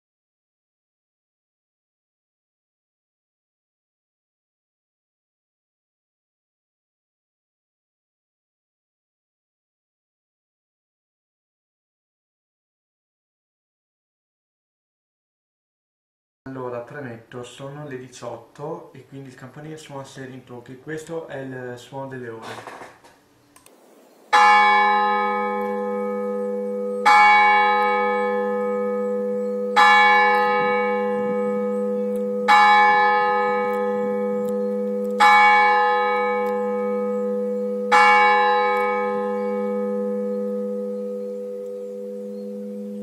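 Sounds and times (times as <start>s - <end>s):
church clock bell striking: 24.3s - 43.0s.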